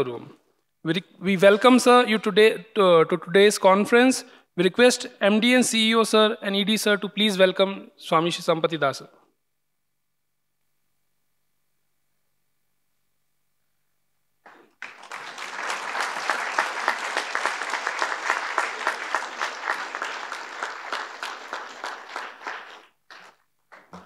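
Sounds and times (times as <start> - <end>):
audience applauding: 14.5 - 24.0.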